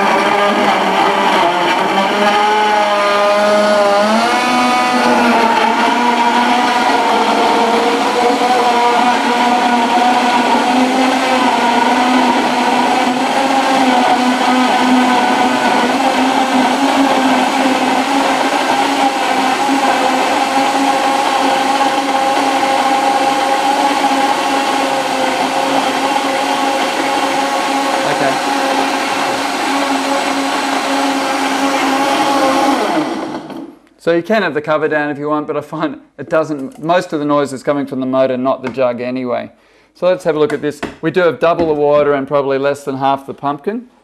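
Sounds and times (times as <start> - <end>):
blender motor whining: 0.0 - 33.8.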